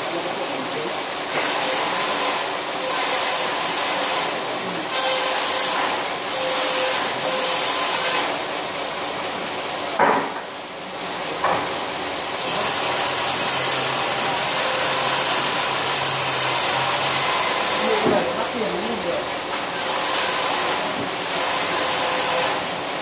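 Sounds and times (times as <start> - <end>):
circular saw cutting wood: 1.3 - 8.4, 12.4 - 22.6
sharp knocks: 10.0 - 10.5.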